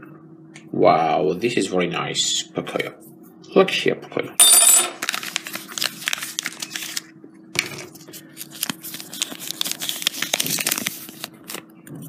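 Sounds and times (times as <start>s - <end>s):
paper leaflet crinkling: 5.0s - 7.1s, 7.9s - 11.7s.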